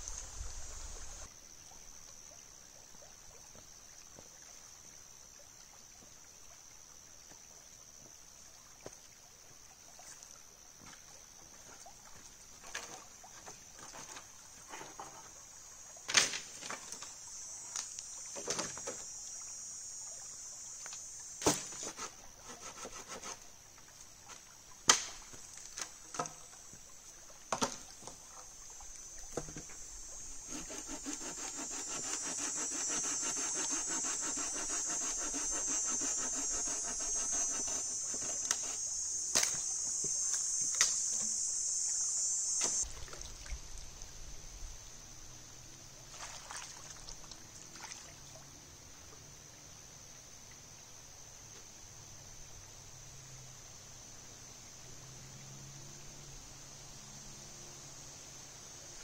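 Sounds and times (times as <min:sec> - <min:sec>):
high steady hiss: 0:00.0 - 0:02.7, 0:13.6 - 0:46.1, 0:48.5 - 0:59.0
hand saw cutting branch: 0:21.4 - 0:23.4, 0:29.4 - 0:39.8.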